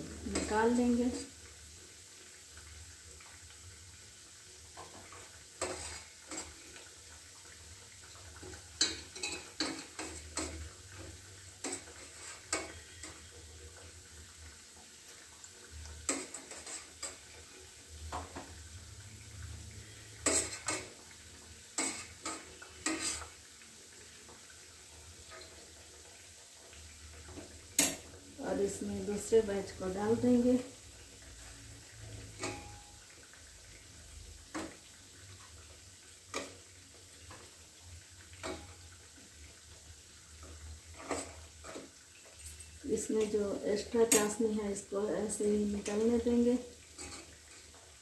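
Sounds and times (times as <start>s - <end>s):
low sizzle of frying: 0.0s - 48.0s
skimmer clinking against steel pot: 44.1s - 44.4s.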